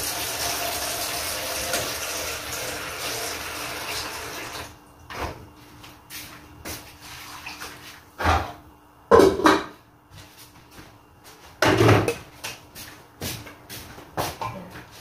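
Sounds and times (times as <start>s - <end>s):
dishes and pots clattering: 8.2s - 9.8s, 11.6s - 12.3s.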